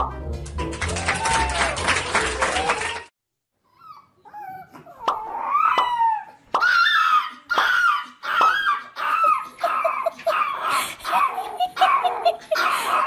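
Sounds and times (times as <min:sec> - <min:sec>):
puppy whining: 0:03.6 - 0:13.0.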